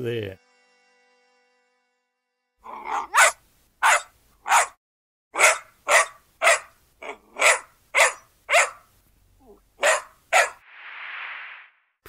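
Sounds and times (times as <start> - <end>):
puppy yapping: 2.7 - 4.8, 5.4 - 8.8, 9.5 - 10.6.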